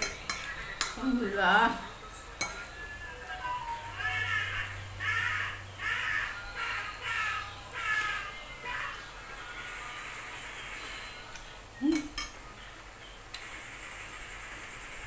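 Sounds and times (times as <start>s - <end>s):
cutlery clinking on ceramic plate: 0.0s - 1.0s, 2.4s - 2.8s, 11.9s - 12.4s
voice-like calls: 3.6s - 10.1s.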